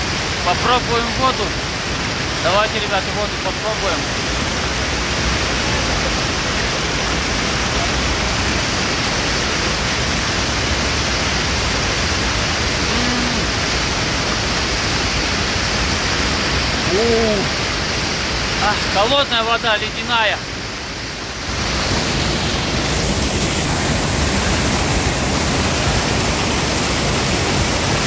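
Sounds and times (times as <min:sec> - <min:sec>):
waterfall roaring: 0:00.0 - 0:28.0
man murmuring: 0:12.8 - 0:13.6, 0:16.8 - 0:17.5.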